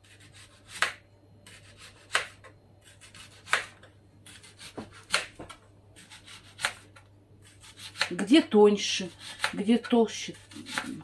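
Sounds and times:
knife scraping cutting board: 0.0s - 3.7s, 6.0s - 6.8s, 7.4s - 8.2s, 8.9s - 11.0s
knife slicing onion on board: 0.0s - 8.2s, 9.0s - 11.0s.

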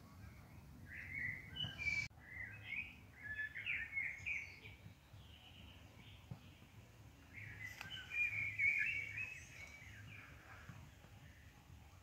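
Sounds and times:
songbird twittering: 0.9s - 6.6s, 7.3s - 10.6s.

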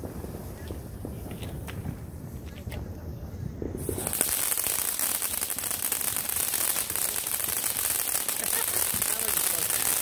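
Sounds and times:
fireworks crackling: 0.0s - 10.0s
fountain fireworks hissing: 0.0s - 10.0s.

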